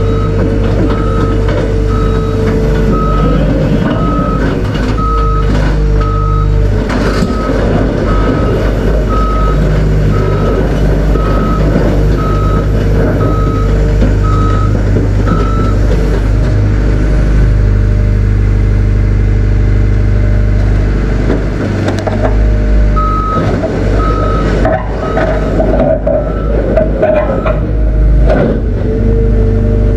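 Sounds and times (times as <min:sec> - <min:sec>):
excavator travel alarm beeping: 0:00.0 - 0:16.1, 0:23.0 - 0:27.7
heavy diesel engines running: 0:00.0 - 0:29.9.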